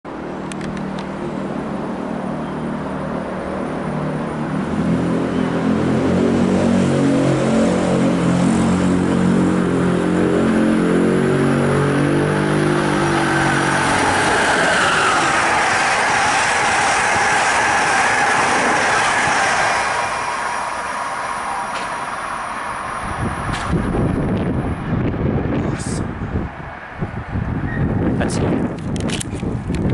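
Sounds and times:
train wheels rumbling on rails: 11.1 - 29.9.

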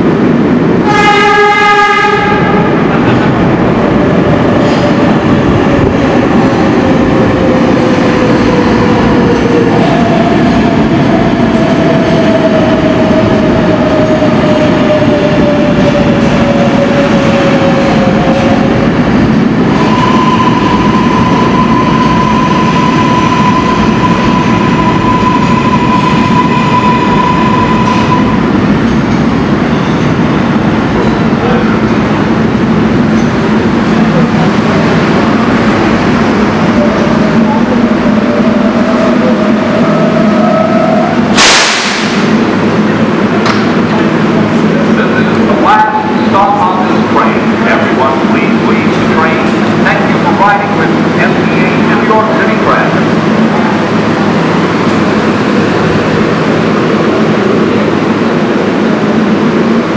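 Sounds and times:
train cars rumbling and clattering: 0.0 - 59.9
train horn blast: 0.8 - 2.7.

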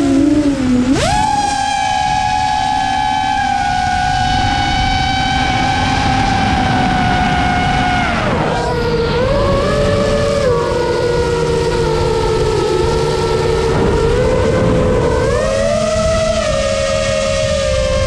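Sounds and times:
drone motors whining: 0.0 - 18.0.

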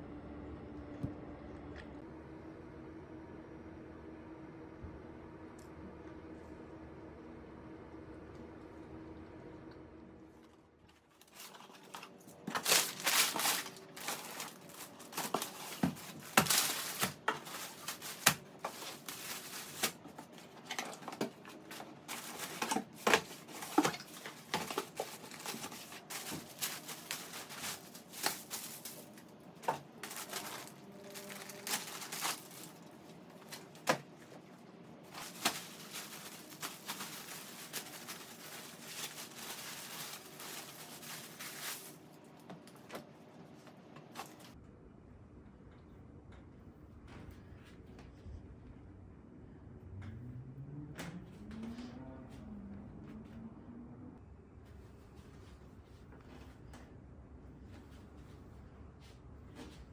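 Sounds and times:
plastic bags crinkling: 10.9 - 43.0.

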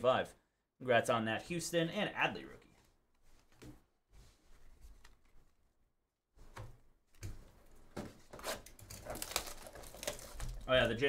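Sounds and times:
plastic wrap crinkling: 8.4 - 11.0.

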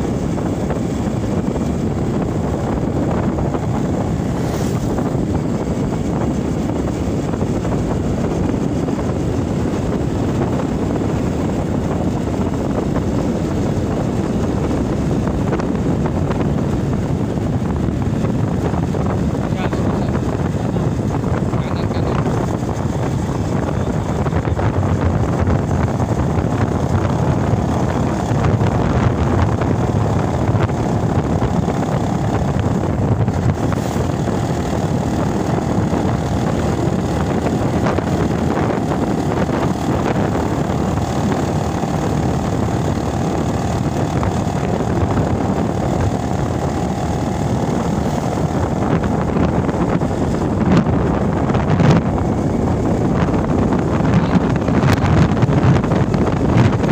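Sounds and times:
motorcycle engine running: 0.0 - 56.9
wind rushing over microphone: 0.0 - 56.9.

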